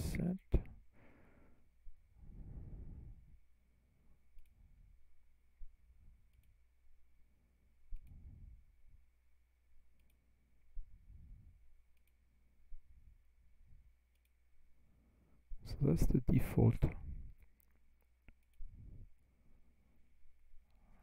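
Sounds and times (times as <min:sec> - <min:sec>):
steady low hum: 0:00.0 - 0:21.0
computer mouse clicks: 0:04.4 - 0:04.6, 0:06.3 - 0:06.6, 0:07.9 - 0:08.2, 0:09.9 - 0:10.2, 0:11.9 - 0:12.2, 0:14.1 - 0:14.4.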